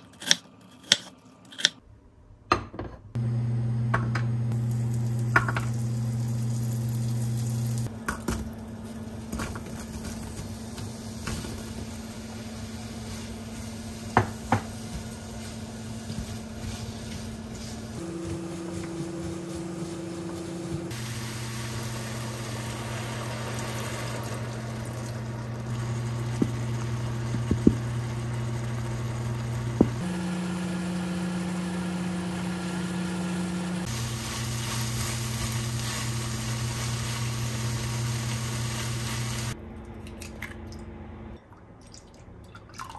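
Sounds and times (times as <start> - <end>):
faint sizzle: 3.2 - 39.6
hob humming: 3.2 - 39.6.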